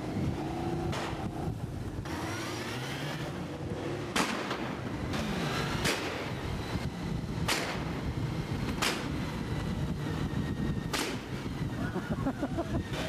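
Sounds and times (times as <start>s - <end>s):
motorcycle engines rumbling: 0.0s - 13.0s
sharp cracks: 4.1s - 4.8s, 5.8s - 6.2s, 7.4s - 7.9s, 8.7s - 9.1s, 10.9s - 11.3s.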